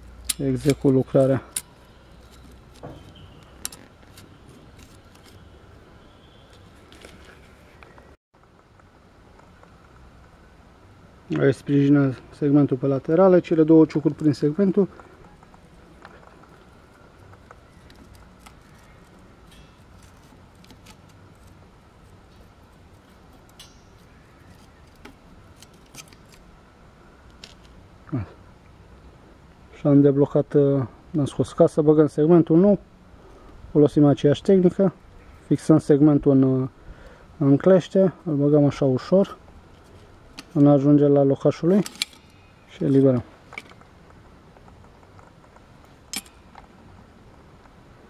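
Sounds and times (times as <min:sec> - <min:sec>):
metallic clicks of pliers: 0:00.2 - 0:01.7.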